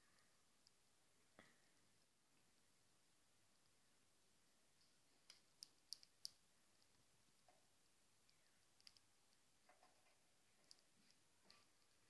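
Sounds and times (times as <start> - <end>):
bird beaks pecking clicks: 5.6 - 6.4.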